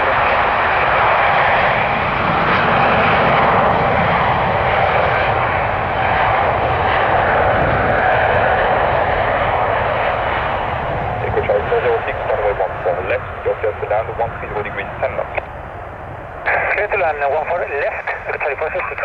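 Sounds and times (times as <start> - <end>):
jet engine rumble: 0.0 - 19.0
faint steady whine: 11.3 - 19.0.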